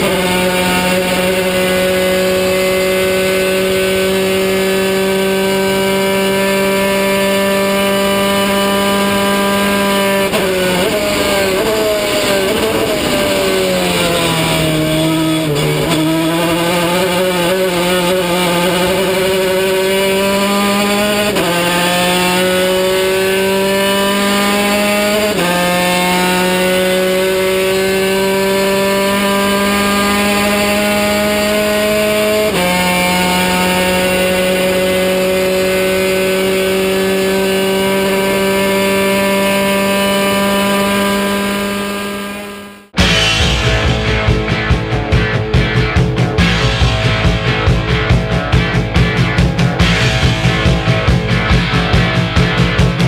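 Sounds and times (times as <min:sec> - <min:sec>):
race car engine accelerating: 0:00.0 - 0:53.0.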